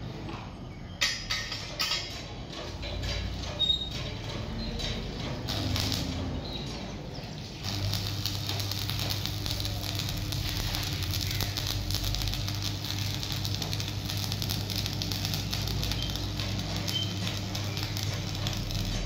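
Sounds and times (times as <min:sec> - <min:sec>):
welding arc crackle and hiss: 0:03.0 - 0:06.5, 0:07.4 - 0:19.0.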